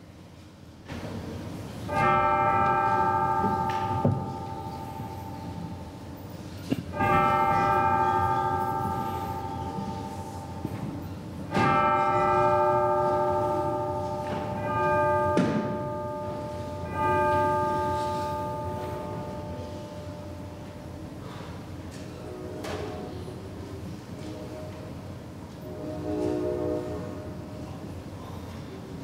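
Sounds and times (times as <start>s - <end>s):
bell ringing: 1.9s - 6.1s, 7.0s - 20.4s.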